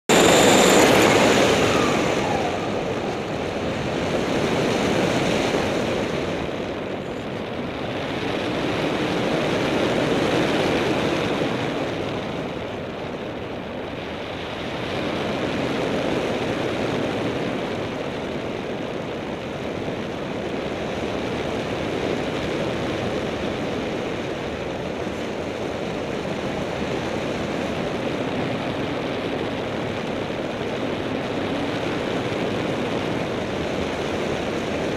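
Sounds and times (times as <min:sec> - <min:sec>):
airflow rushing over camera: 0:00.0 - 0:08.6
propeller aircraft engine droning: 0:00.0 - 0:34.9.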